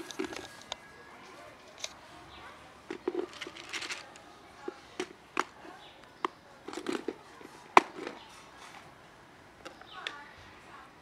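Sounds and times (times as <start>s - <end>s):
plastic container clicking on asphalt: 0.0s - 0.8s, 2.9s - 8.2s.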